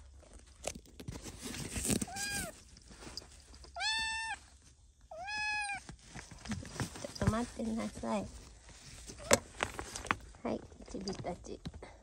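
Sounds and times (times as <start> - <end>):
pet carrier rustling: 0.3 - 4.3, 5.9 - 11.4
kitten meowing: 2.1 - 2.5, 3.8 - 4.4, 5.1 - 5.8.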